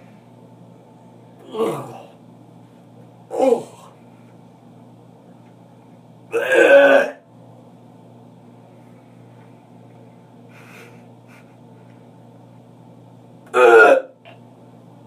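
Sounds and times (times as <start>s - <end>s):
low background hum: 0.0s - 15.0s
man gagging: 1.5s - 2.1s, 3.3s - 3.9s, 13.5s - 14.1s.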